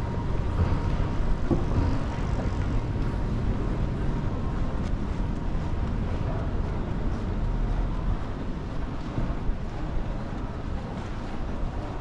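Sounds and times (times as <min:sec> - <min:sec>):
city street rumble: 0:00.0 - 0:12.0.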